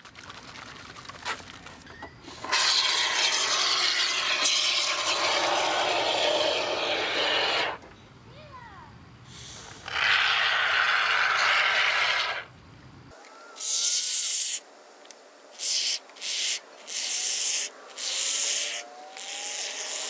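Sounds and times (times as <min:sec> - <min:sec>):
spray foam hissing from aerosol can: 0:02.4 - 0:07.8, 0:13.7 - 0:14.6.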